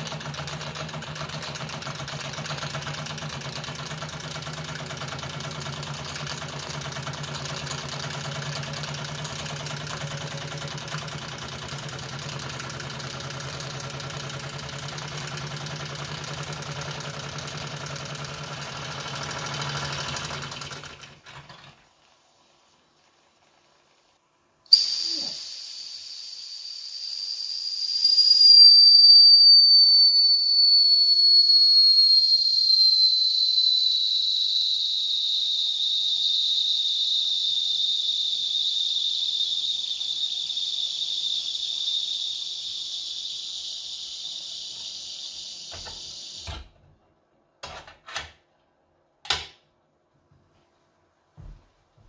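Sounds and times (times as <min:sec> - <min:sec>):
toy steam whistle: 0:24.7 - 0:46.6.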